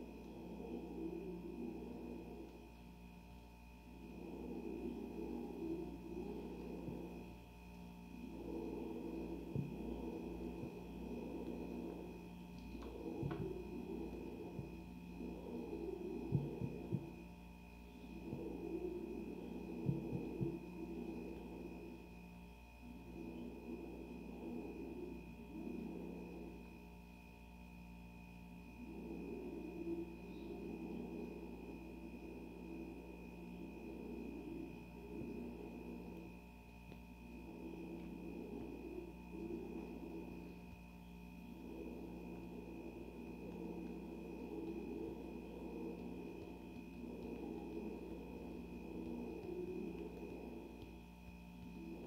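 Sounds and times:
low murmur: 0:00.0 - 0:27.0
faint high whine: 0:00.0 - 0:52.0
steady hum: 0:00.0 - 0:52.0.

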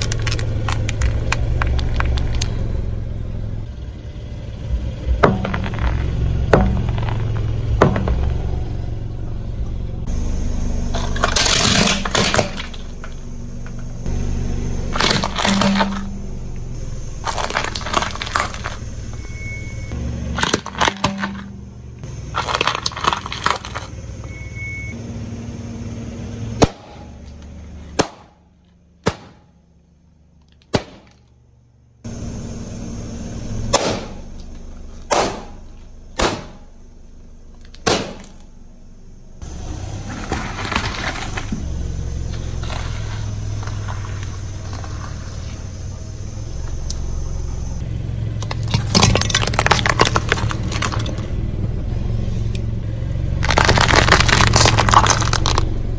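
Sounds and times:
plastic toys crunching: 0:00.0 - 0:02.6, 0:05.3 - 0:06.1, 0:10.9 - 0:12.9, 0:14.9 - 0:16.1, 0:17.2 - 0:18.8, 0:20.4 - 0:21.6, 0:22.2 - 0:23.9, 0:48.4 - 0:51.3, 0:53.4 - 0:55.7
sharp pops and cracks: 0:00.0 - 0:02.6, 0:15.0 - 0:16.1, 0:17.2 - 0:18.8, 0:22.3 - 0:23.9, 0:30.4 - 0:31.3, 0:36.2 - 0:36.6, 0:37.6 - 0:38.5, 0:48.4 - 0:51.3, 0:53.4 - 0:55.7
car rumble: 0:00.0 - 0:55.9
balloons bursting: 0:53.4 - 0:55.6.

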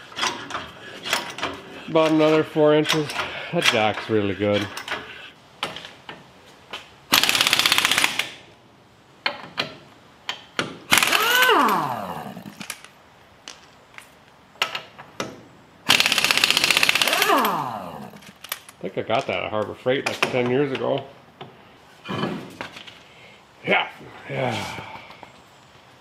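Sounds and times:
impact wrench hammering: 0:10.6 - 0:12.6.

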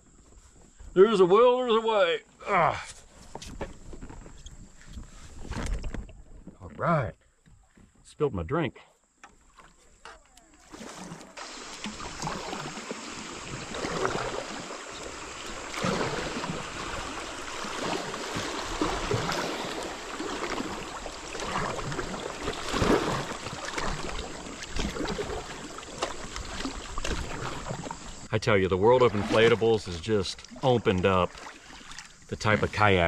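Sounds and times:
river water rushing and splashing: 0:10.6 - 0:33.0.

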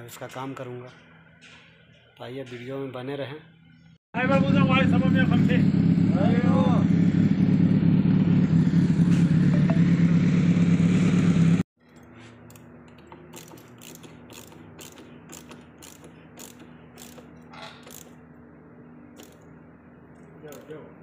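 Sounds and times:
motorcycle engine running: 0:04.2 - 0:11.6, 0:12.5 - 0:18.3
ratchet wrench clicking: 0:11.9 - 0:18.2, 0:19.2 - 0:19.5, 0:20.5 - 0:20.8.

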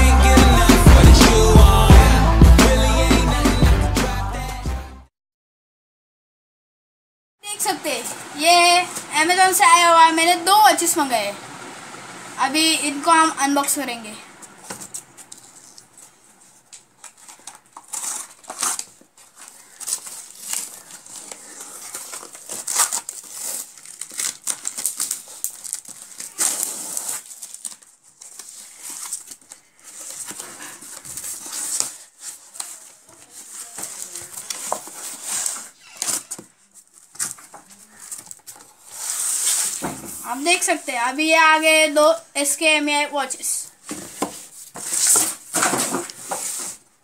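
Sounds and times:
cardboard crinkling and tearing: 0:14.4 - 0:40.2, 0:43.8 - 0:47.0.

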